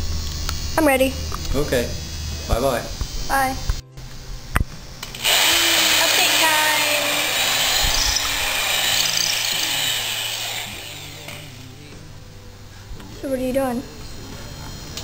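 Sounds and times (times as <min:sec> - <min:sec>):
electric drill running: 0:04.9 - 0:11.8.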